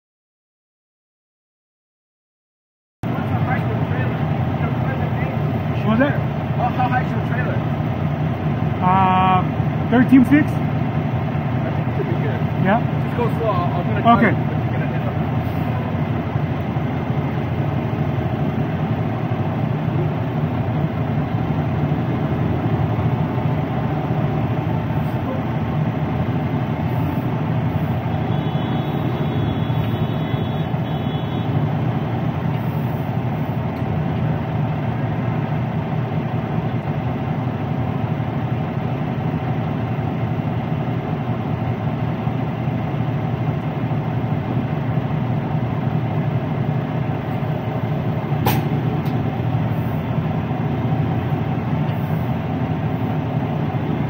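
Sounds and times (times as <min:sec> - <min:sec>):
diesel truck engine idling: 0:03.0 - 0:54.0.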